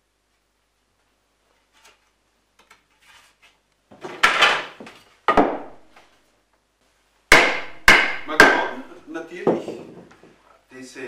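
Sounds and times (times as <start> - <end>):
wooden board knocks: 4.2 - 5.9, 9.4 - 10.4.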